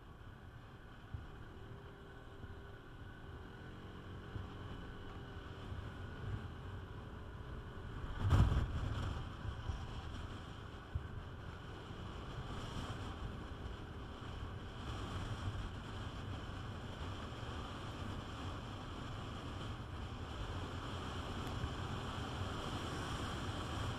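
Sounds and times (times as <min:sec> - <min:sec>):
scooter road rumble: 0:00.0 - 0:23.9
wind rushing over microphone: 0:07.3 - 0:23.9.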